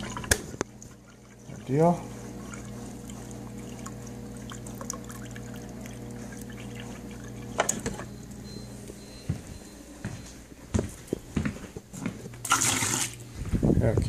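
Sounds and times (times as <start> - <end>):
water running into a glass: 0.0 - 8.0, 12.4 - 13.2
refrigerator dispenser hum: 0.0 - 10.0, 11.8 - 14.0.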